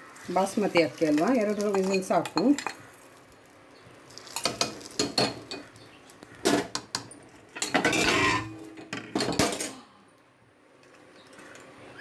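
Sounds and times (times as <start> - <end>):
ladle scraping metal pot: 7.6 - 8.8.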